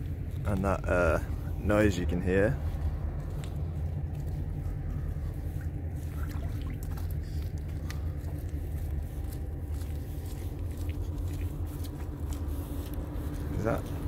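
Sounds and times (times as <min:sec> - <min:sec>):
ferry engines droning: 0:00.0 - 0:14.0.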